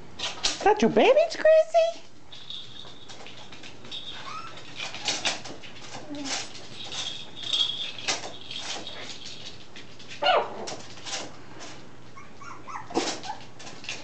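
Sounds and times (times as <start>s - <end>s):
puppies whimpering and yipping: 4.0s - 5.1s, 12.1s - 13.6s.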